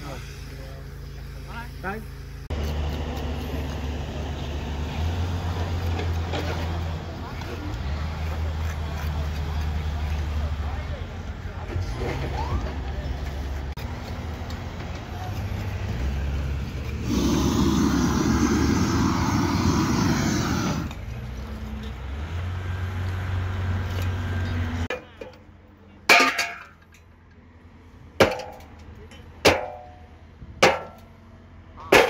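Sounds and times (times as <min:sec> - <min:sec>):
gas torch hissing: 0:17.0 - 0:21.0.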